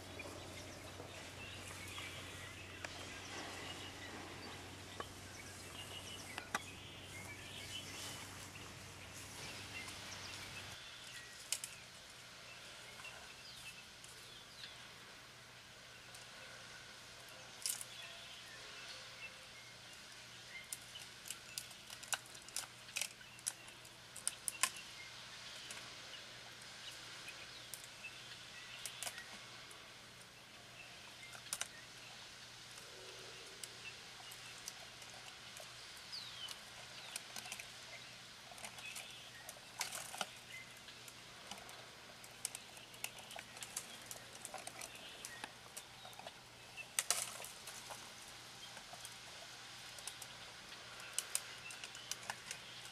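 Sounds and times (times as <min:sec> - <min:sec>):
faint background hiss: 0:00.0 - 0:52.9
twigs snapping and crackling: 0:11.1 - 0:11.8, 0:17.6 - 0:17.9, 0:20.6 - 0:24.8, 0:28.8 - 0:29.4, 0:31.2 - 0:31.8, 0:36.4 - 0:37.7, 0:38.4 - 0:49.3, 0:49.9 - 0:52.9.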